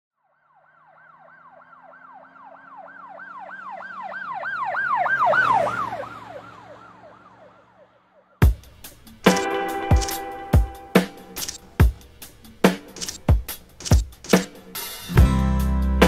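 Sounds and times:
emergency vehicle siren: 0.1s - 8.7s.

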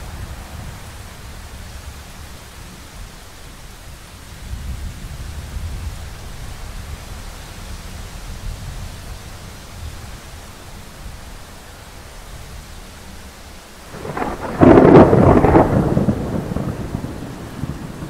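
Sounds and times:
steady rain falling: 0.0s - 18.0s
distant thunder rumble: 13.9s - 18.0s.

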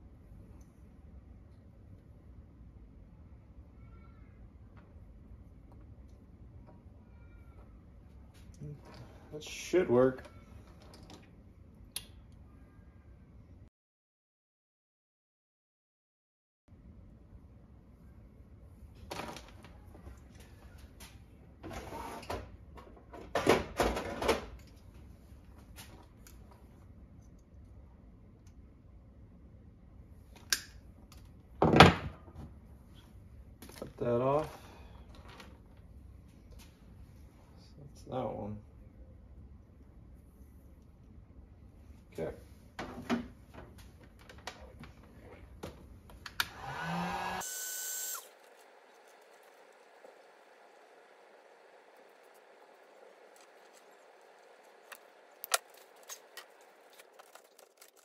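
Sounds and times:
plastic tubing rustling and clatter: 42.7s - 46.2s, 52.1s - 58.0s
heat gun blowing whine: 46.4s - 56.3s.

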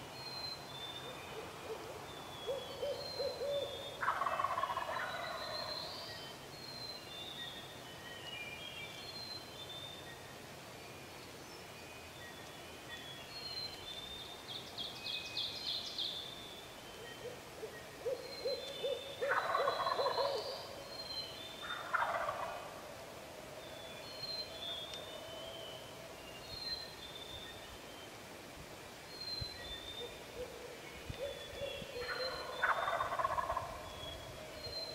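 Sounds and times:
songbirds singing: 0.0s - 34.9s
turkey gobbling: 2.8s - 5.6s, 18.8s - 20.6s, 21.6s - 22.8s, 32.0s - 33.8s.

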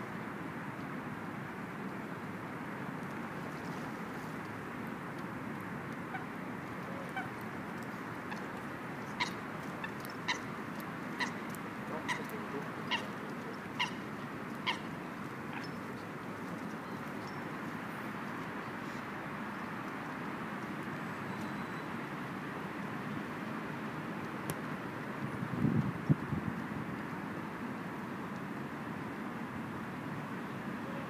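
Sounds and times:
coots calling: 9.1s - 10.5s, 11.2s - 13.2s, 13.8s - 15.8s.

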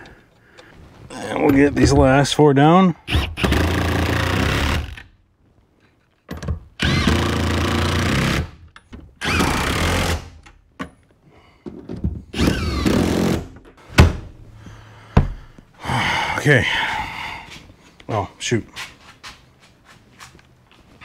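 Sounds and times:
cordless impact tool driving bolts: 3.1s - 5.1s, 6.3s - 10.6s, 12.3s - 13.7s.

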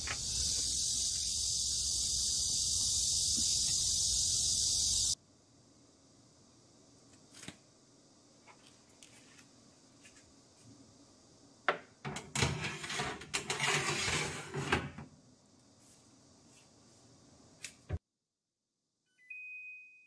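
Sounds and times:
metal tray scraping on rails: 12.2s - 15.0s.

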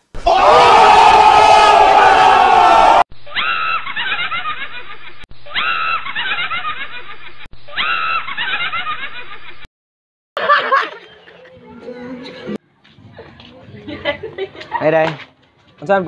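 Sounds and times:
snickering laugh: 3.3s - 9.6s.

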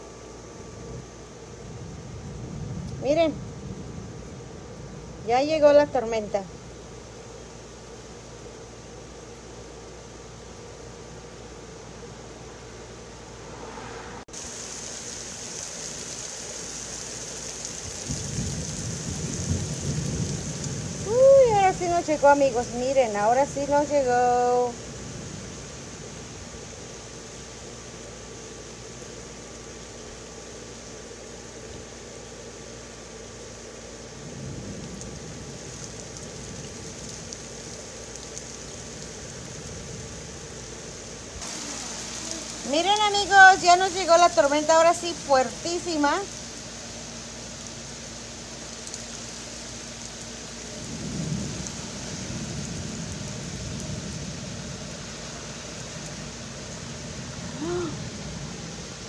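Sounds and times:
heavy rain pouring: 12.2s - 59.0s
low rumble: 13.2s - 14.4s.

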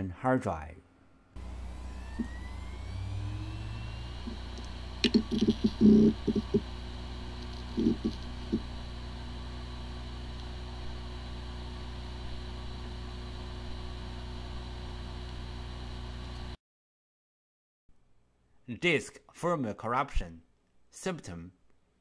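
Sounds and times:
faint rising whine: 0.9s - 16.6s
hard disk drive hum: 1.0s - 16.6s
drive clicks and ticks: 4.2s - 8.7s.

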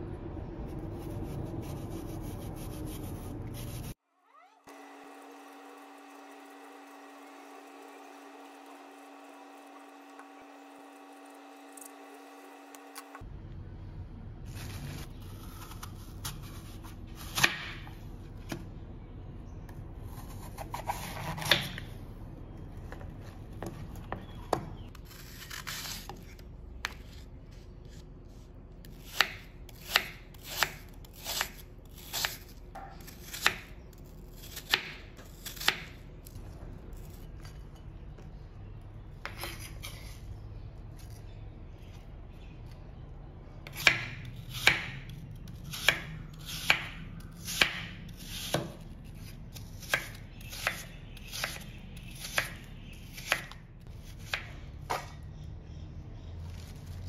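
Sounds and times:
knife chopping on wooden board: 17.3s - 17.9s, 45.8s - 48.8s.

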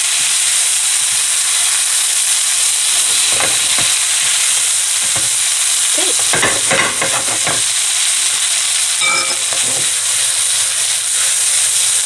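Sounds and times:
stir fry sizzling in a pan: 0.0s - 12.0s
spatula scraping a pan: 3.0s - 8.2s, 9.0s - 11.4s.

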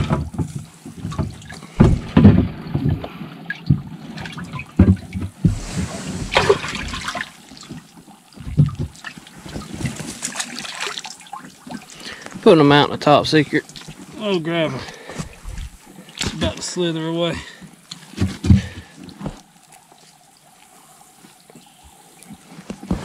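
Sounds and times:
water splashing in a tank: 0.0s - 21.6s
sharp knocks: 1.2s - 3.1s.

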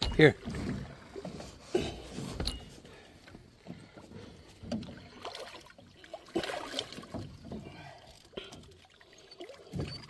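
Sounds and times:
fish splashing in water: 5.1s - 7.3s.

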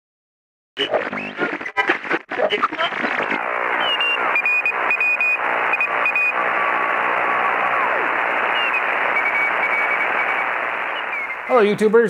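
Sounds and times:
radio static hiss: 0.8s - 12.0s
whistles sliding down in pitch: 3.7s - 11.5s.

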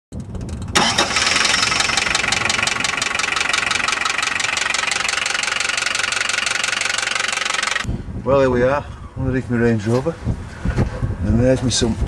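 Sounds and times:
diesel engine knocking: 0.2s - 7.9s.

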